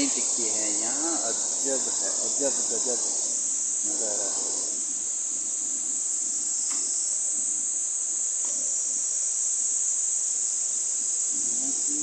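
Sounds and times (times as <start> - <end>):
insects shrilling: 0.0 - 12.0.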